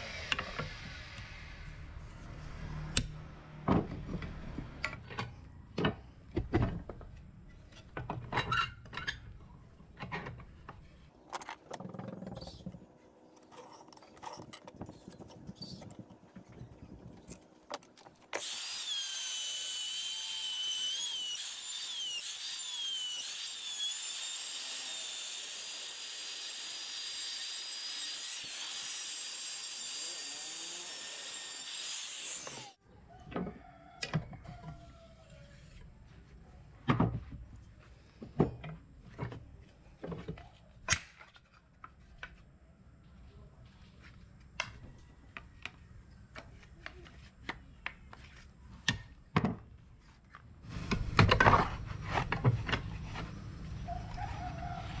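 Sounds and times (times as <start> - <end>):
power tool whining: 18.3 - 32.8.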